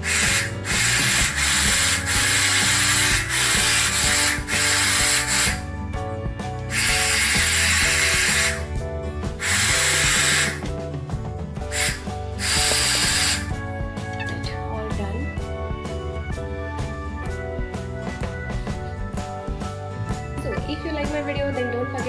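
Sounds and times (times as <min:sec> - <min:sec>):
hair dryer blowing: 0:00.0 - 0:05.6, 0:06.7 - 0:08.7, 0:09.4 - 0:10.7, 0:11.7 - 0:13.6
background music: 0:00.0 - 0:22.0.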